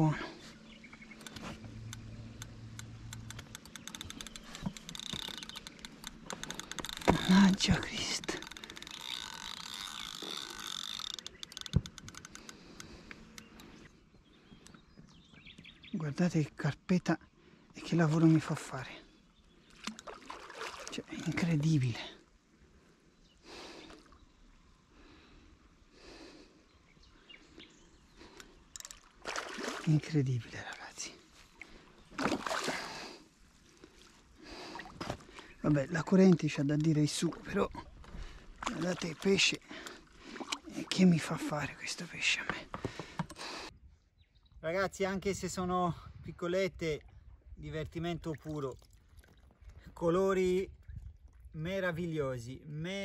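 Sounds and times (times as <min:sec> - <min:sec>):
fishing reel clicking: 0:01.2 - 0:07.5, 0:08.2 - 0:13.6.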